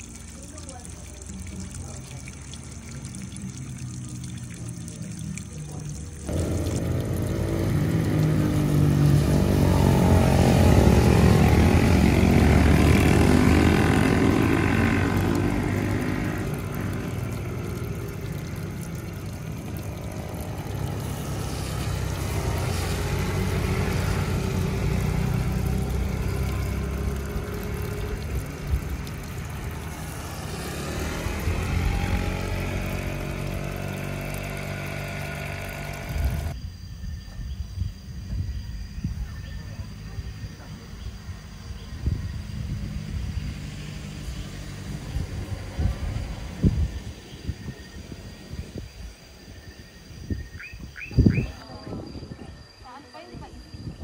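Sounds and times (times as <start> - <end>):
motorcycles riding past: 6.2 - 36.6, 41.2 - 47.3.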